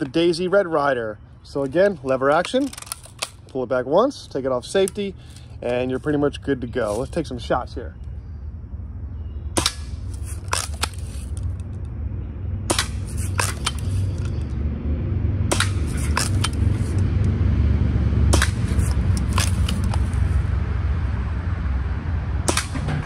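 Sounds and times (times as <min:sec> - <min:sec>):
gun lever clacking: 0:02.0 - 0:03.6, 0:18.4 - 0:20.2
low rumble: 0:11.3 - 0:23.0
bb gun shot snap: 0:15.5 - 0:16.5, 0:18.3 - 0:18.8, 0:22.4 - 0:23.0
bb striking targets: 0:15.5 - 0:16.6, 0:18.3 - 0:20.0, 0:22.4 - 0:23.0.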